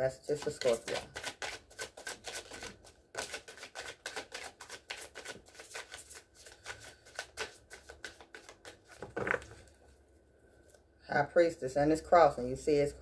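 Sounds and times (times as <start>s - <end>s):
cards being shuffled: 0.3s - 9.7s.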